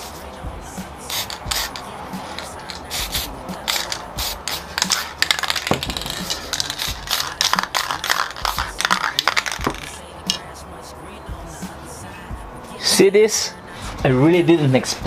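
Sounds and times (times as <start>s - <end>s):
spray paint hissing: 0.0s - 10.4s
cans knocking and tapping: 4.8s - 10.4s.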